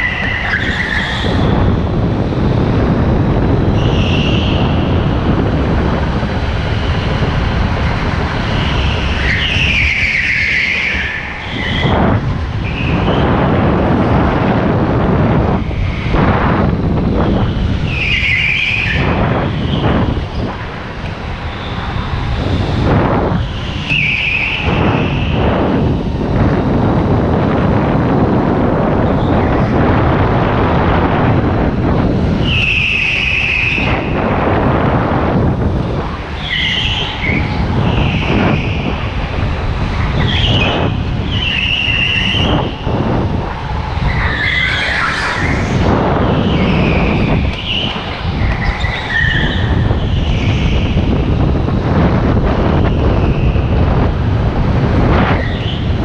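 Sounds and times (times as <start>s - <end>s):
tyres squealing: 0.0s - 1.5s, 7.9s - 13.2s, 17.2s - 22.8s, 23.4s - 25.4s, 36.1s - 51.3s
kart engine rumble: 0.0s - 56.0s.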